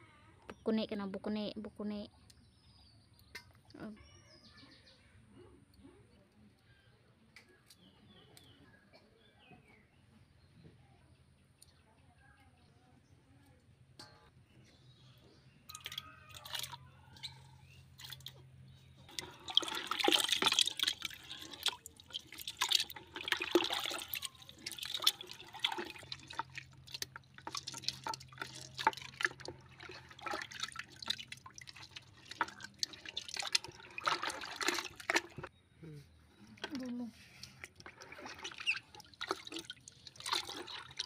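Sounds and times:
hands splashing in bucket of water: 0:15.7 - 0:16.8, 0:18.0 - 0:18.4, 0:19.0 - 0:35.5, 0:37.4 - 0:41.0.

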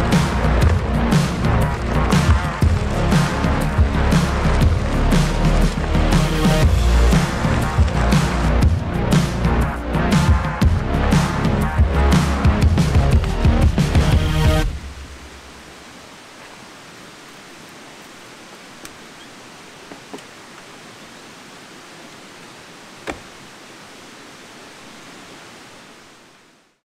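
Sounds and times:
background music: 0:00.0 - 0:15.2
outdoor background hiss: 0:05.0 - 0:26.8
faint clicks: 0:18.8 - 0:19.0.

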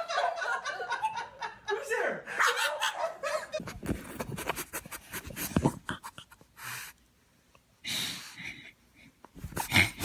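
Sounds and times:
dog breathy puff: 0:03.9 - 0:07.0, 0:07.8 - 0:08.6, 0:09.4 - 0:10.0.

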